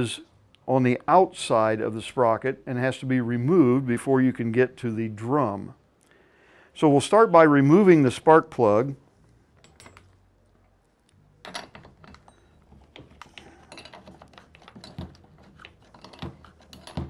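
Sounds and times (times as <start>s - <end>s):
hand tools clicking on metal: 11.5s - 17.0s.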